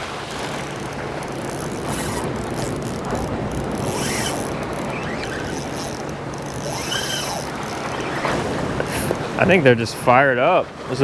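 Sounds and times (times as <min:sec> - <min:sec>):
fishing reel ticking: 0:00.5 - 0:08.1.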